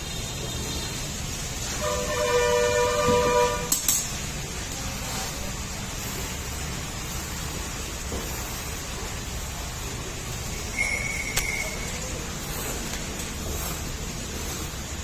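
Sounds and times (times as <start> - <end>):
two-tone horn blast: 1.6 - 3.9.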